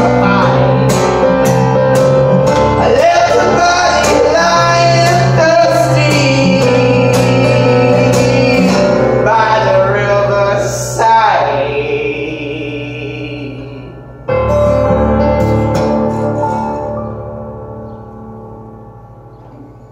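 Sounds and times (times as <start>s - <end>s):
acoustic guitar: 0.0s - 19.9s
keyboard playing: 0.0s - 19.9s
man singing: 2.6s - 14.1s.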